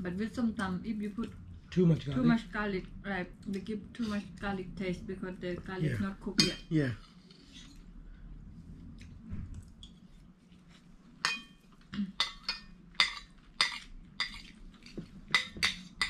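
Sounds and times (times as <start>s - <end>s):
cutlery clinking on plates: 11.2s - 11.6s, 12.2s - 16.0s.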